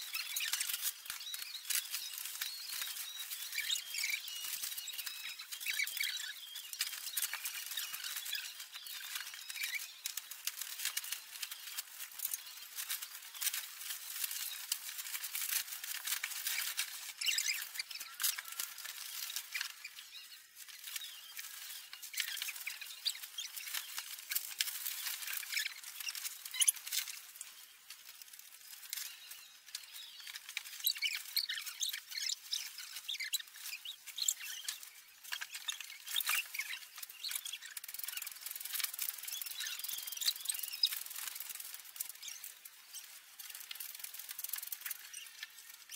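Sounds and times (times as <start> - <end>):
plastic wrap crinkling: 0.0 - 45.9.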